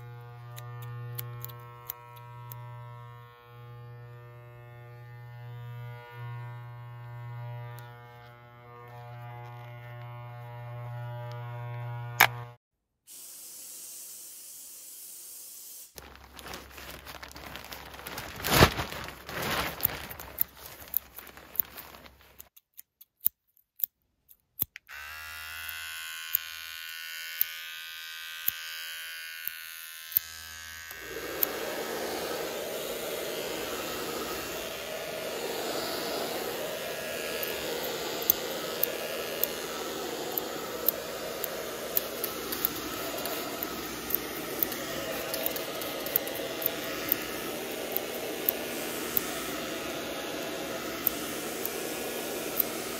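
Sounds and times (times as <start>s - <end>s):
electric clipper buzzing: 0.0s - 12.6s, 24.8s - 52.9s
scissors clicks and snips: 0.5s - 2.6s, 22.4s - 24.9s, 37.4s - 49.3s.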